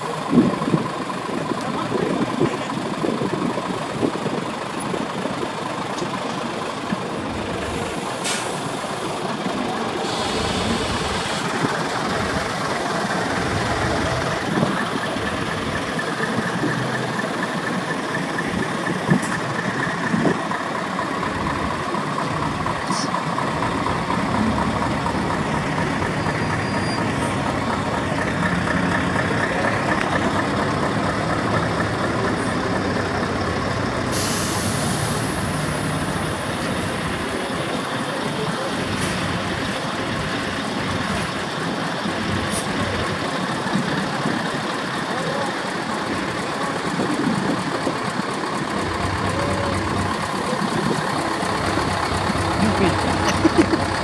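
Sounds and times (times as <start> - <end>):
truck diesel engines running: 0.0 - 54.0
air brakes hissing: 7.9 - 9.0, 9.8 - 11.9, 34.0 - 36.9.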